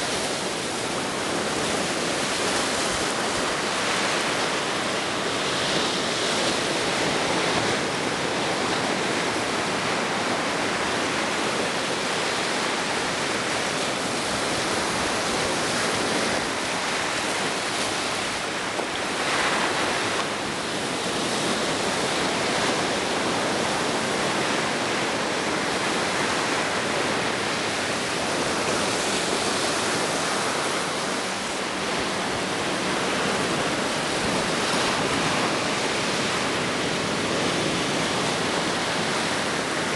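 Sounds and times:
waves breaking on beach: 0.0s - 39.9s.

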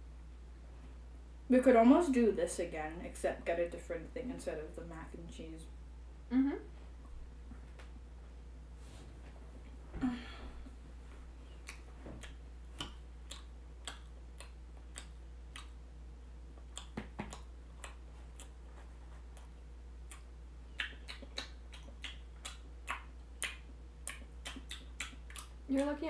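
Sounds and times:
low steady hum: 0.0s - 26.0s
wet chewing and finger-licking: 11.4s - 15.9s, 16.5s - 26.0s.

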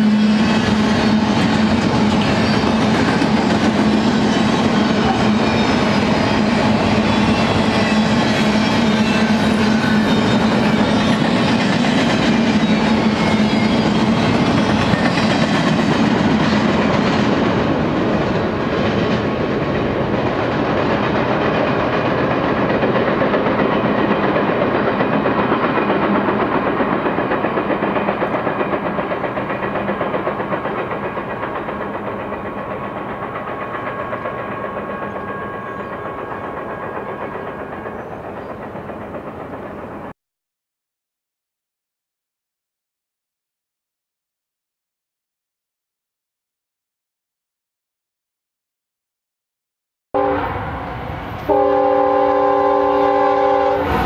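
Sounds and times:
train wheels clattering on rails: 0.0s - 40.2s.

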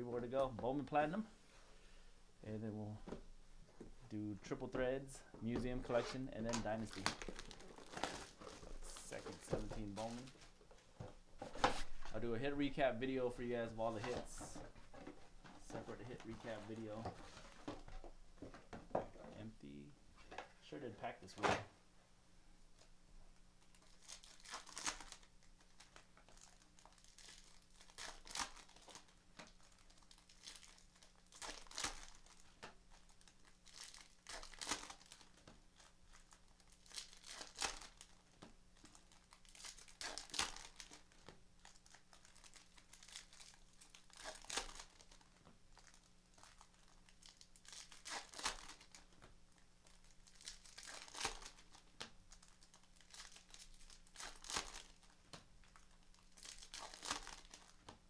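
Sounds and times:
low steady hum: 0.0s - 58.0s
card pack wrappers crinkling: 5.5s - 10.6s, 23.6s - 58.0s.

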